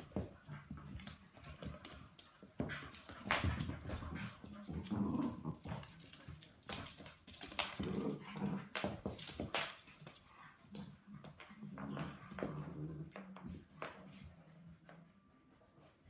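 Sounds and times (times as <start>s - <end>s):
dogs scuffling: 0.0s - 14.3s
paws clicking on wooden floor: 0.0s - 15.0s
dogs growling and whining: 4.5s - 5.9s.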